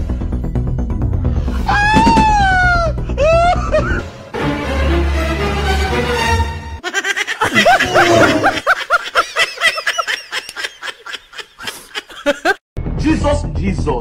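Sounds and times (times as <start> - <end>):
high-pitched snickering laughter: 6.8 - 12.6.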